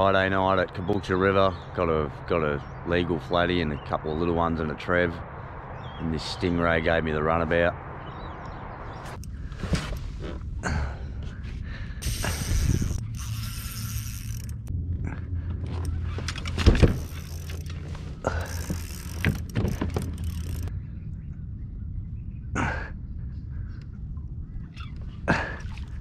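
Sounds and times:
fishing reel cranking and clicking: 12.0 - 14.7, 15.8 - 20.7
handling knocks: 18.6 - 20.5.

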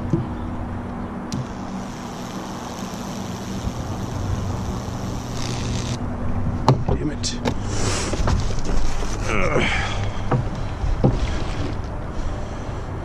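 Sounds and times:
electrical hum: 0.0 - 7.7
electrical hiss: 1.3 - 6.0.

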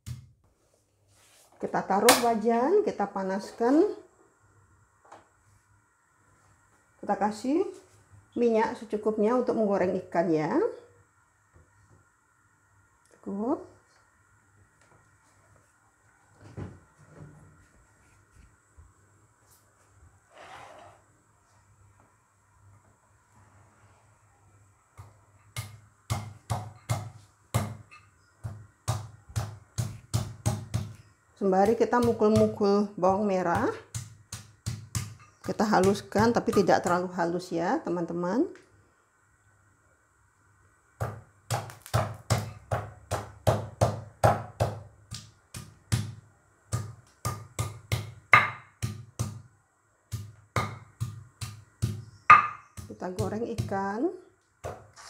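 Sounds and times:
pestle pounding in mortar: 25.6 - 31.0, 31.6 - 32.6, 33.5 - 37.0, 41.0 - 49.4, 50.1 - 53.8.

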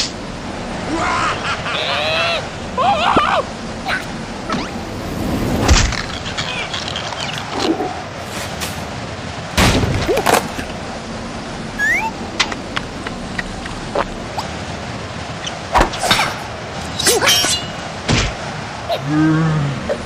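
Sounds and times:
storm wind rushing: 0.0 - 6.7
debris thuds and knocks: 9.6 - 10.7.

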